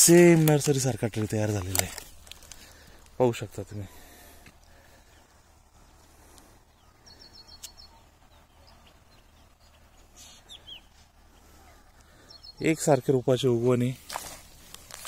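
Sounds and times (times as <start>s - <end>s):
low background noise: 0.0s - 15.0s
bird chirps: 5.0s - 13.3s.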